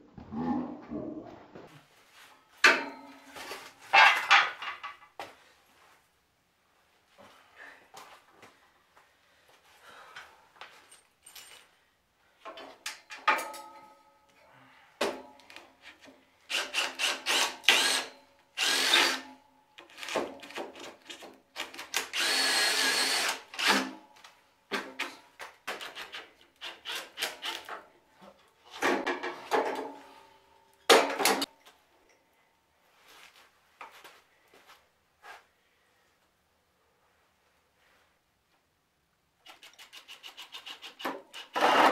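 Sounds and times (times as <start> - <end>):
tools and parts clattering: 2.6 - 5.1, 10.7 - 11.8, 12.5 - 14.0, 28.7 - 30.0
power drill bursts: 16.5 - 19.2, 22.0 - 23.9, 41.5 - 41.9.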